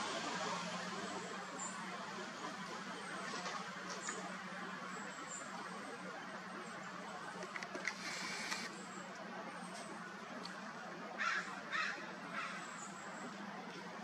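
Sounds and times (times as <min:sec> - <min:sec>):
outdoor background hiss: 0:00.0 - 0:14.0
sharp clicks: 0:07.4 - 0:08.7.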